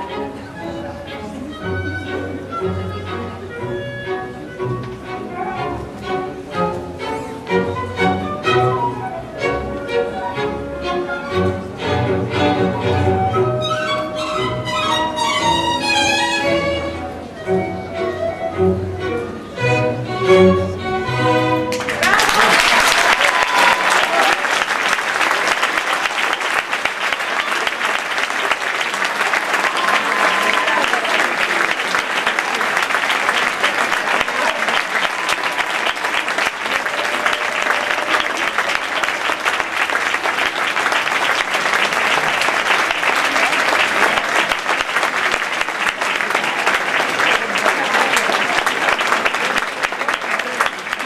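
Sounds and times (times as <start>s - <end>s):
audience applauding: 21.6s - 51.0s.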